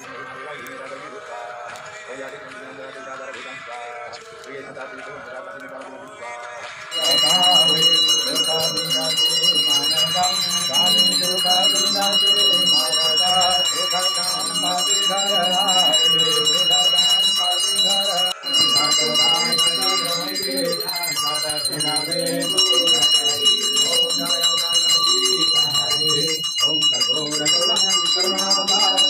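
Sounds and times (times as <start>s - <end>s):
voices singing: 0.0s - 29.0s
bell ringing: 6.9s - 29.0s.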